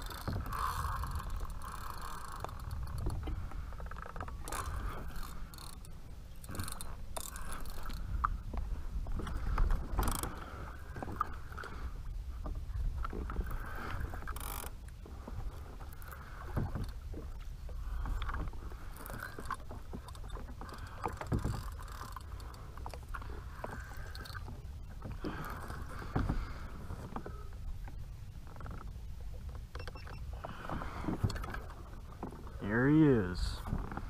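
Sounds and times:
wind rumble on microphone: 0:00.0 - 0:05.4
fishing gear clicks and knocks: 0:00.0 - 0:11.7, 0:12.4 - 0:15.0, 0:18.0 - 0:34.0
water lapping against plastic hull: 0:00.0 - 0:34.0.

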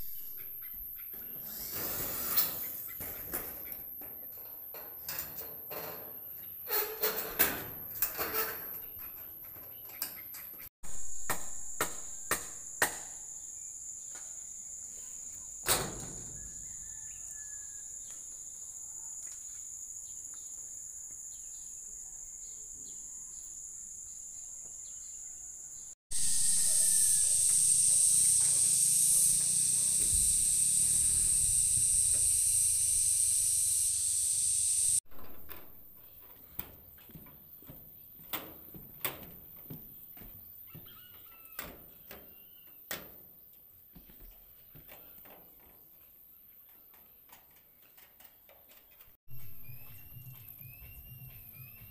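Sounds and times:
insects shrilling: 0:26.1 - 0:35.0.

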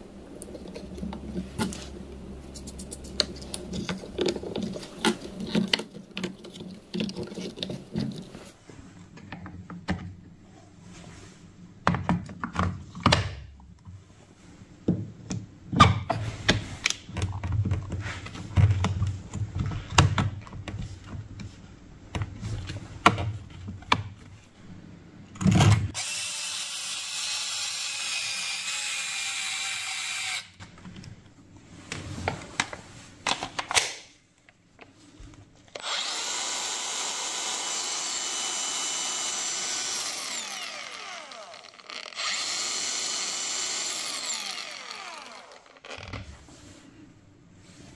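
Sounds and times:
angle grinder whining: 0:26.0 - 0:30.5, 0:35.8 - 0:46.2.

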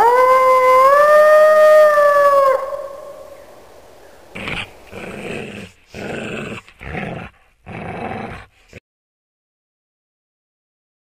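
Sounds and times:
wolf howl: 0:00.0 - 0:03.3
short rough growls: 0:04.4 - 0:08.8.

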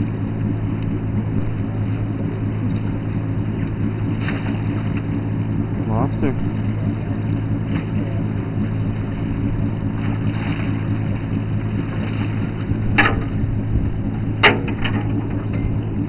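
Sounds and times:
boat engine humming: 0:00.0 - 0:16.0
sharp knocks: 0:13.0 - 0:13.4, 0:14.4 - 0:15.7.

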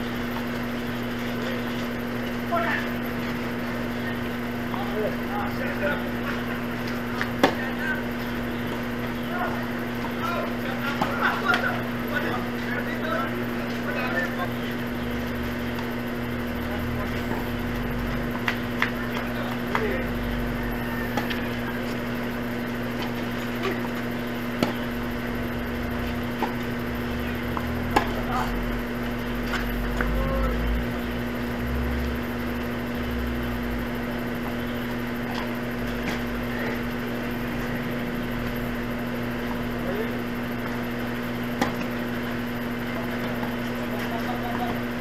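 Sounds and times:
steady low hum: 0:00.0 - 0:45.0
tennis balls struck by rackets: 0:06.2 - 0:09.2, 0:09.8 - 0:11.9, 0:18.2 - 0:20.0, 0:20.8 - 0:30.2, 0:40.5 - 0:44.9.

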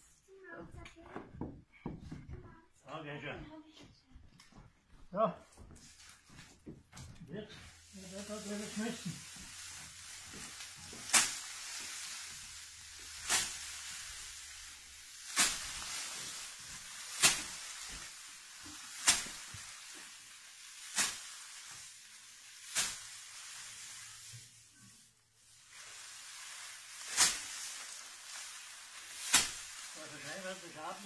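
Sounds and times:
straw rustling: 0:05.5 - 0:31.0
straw sheaf whacking wooden wheel: 0:09.2 - 0:19.6, 0:26.9 - 0:28.0, 0:29.0 - 0:31.0.

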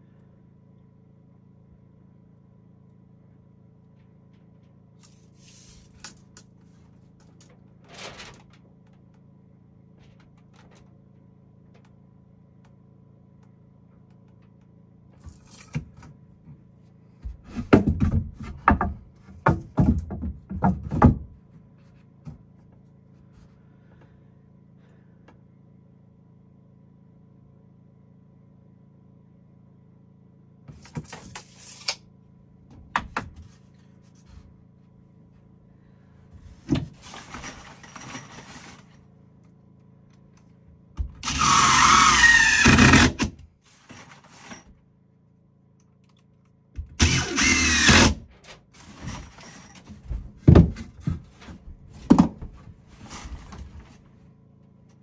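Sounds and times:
low steady hum: 0:00.0 - 0:55.0
wood knocks and thuds: 0:17.2 - 0:21.4, 0:49.0 - 0:54.0
power tool running: 0:41.2 - 0:43.4, 0:47.0 - 0:48.3.

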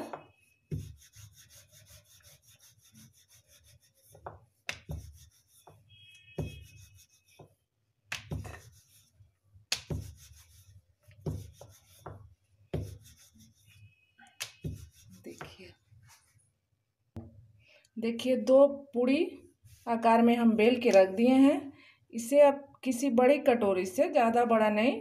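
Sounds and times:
rolling pin rubbing on dough: 0:00.1 - 0:16.2.

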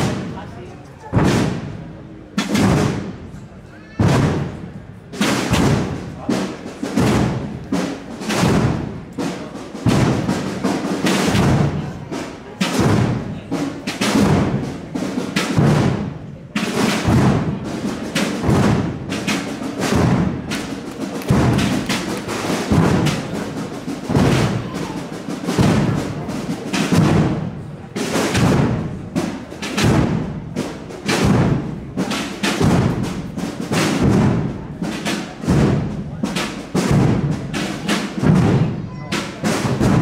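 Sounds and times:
drum band beating a march: 0:00.0 - 0:40.0.

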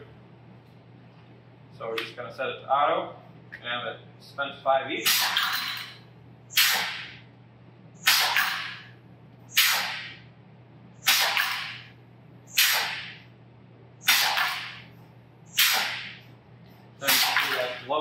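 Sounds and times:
compressed air blasts: 0:05.0 - 0:05.5, 0:06.5 - 0:07.2, 0:08.0 - 0:08.9, 0:09.5 - 0:10.3, 0:11.0 - 0:11.9, 0:12.5 - 0:13.3, 0:14.0 - 0:16.3, 0:17.0 - 0:17.8.

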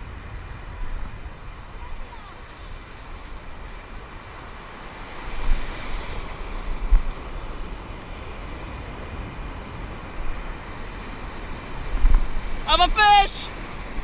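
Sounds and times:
wind buffeting microphone: 0:00.0 - 0:12.7
shallow surf washing: 0:00.0 - 0:14.0.

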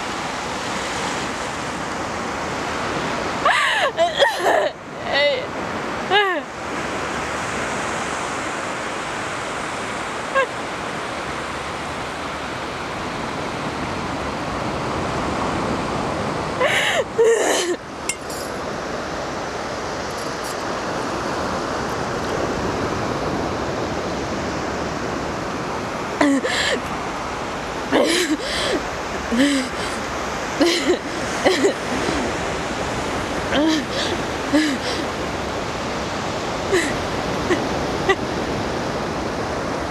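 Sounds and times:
sea surf: 0:00.0 - 0:39.9
woman's wordless outbursts: 0:03.5 - 0:05.5, 0:33.5 - 0:35.0.

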